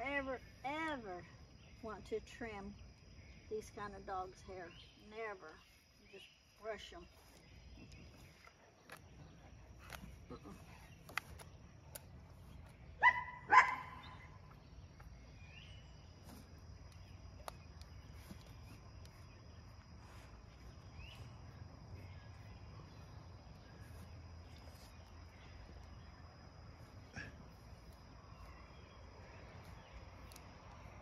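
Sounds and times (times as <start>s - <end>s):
dog barking: 13.0s - 14.1s.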